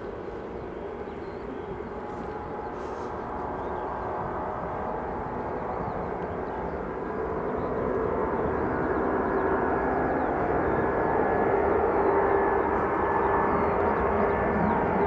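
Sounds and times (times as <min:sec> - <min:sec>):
jet engines during takeoff: 0:00.0 - 0:15.0.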